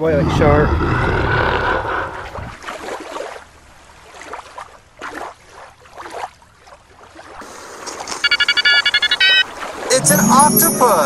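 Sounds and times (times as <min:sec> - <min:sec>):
water sloshing and splashing: 0:02.2 - 0:10.1.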